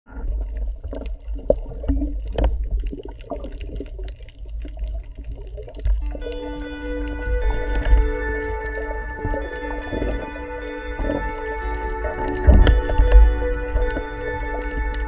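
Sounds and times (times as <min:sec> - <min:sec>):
low rumble: 0:00.1 - 0:15.0
water gurgling and sloshing: 0:00.1 - 0:15.0
background music sustained tones: 0:06.0 - 0:15.0.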